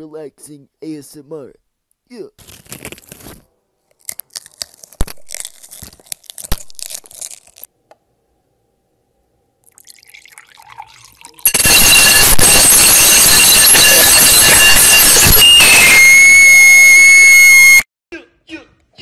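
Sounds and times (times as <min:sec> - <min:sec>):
loud harsh noise: 0:11.5 - 0:17.8.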